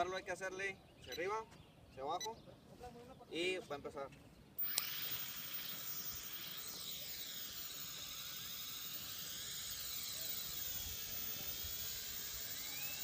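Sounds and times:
toy drone motors whining: 4.6 - 13.0.

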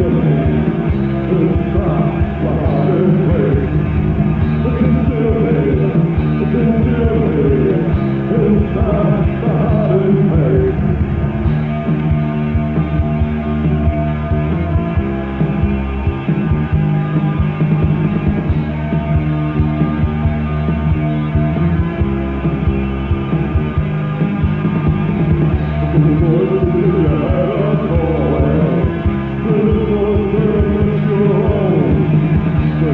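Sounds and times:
person singing: 0.0 - 11.5, 25.9 - 32.9
rock band playing: 0.0 - 32.9
drum beat: 0.9 - 18.6.

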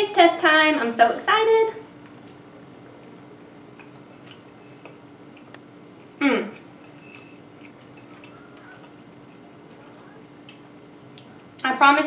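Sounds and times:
chewing: 6.5 - 10.6.

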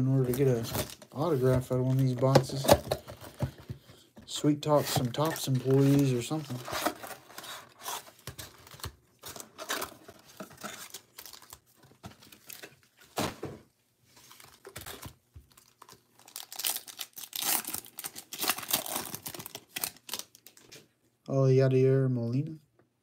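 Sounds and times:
plastic wrapper crinkling and tearing: 4.9 - 12.8, 14.2 - 20.8.

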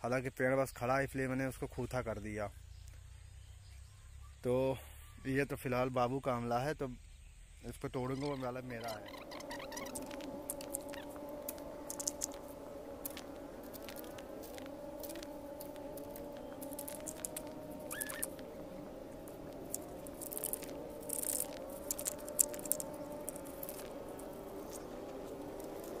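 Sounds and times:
wavering background hum: 8.1 - 26.0
fruit pattering down: 8.2 - 26.0
leaves rustling: 8.2 - 26.0
branches cracking: 9.1 - 26.0.

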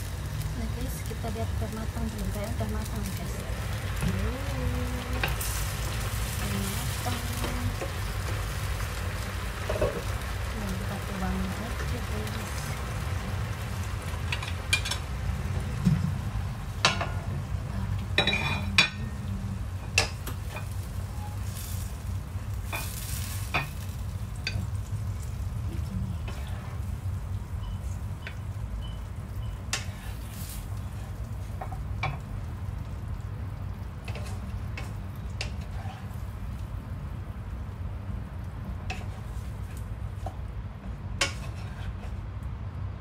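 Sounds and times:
food sizzling: 0.0 - 42.0
steady low hum: 0.0 - 43.0
wooden spatula scraping frying pan: 26.2 - 26.8, 34.0 - 36.3, 38.8 - 40.4, 41.2 - 42.2.

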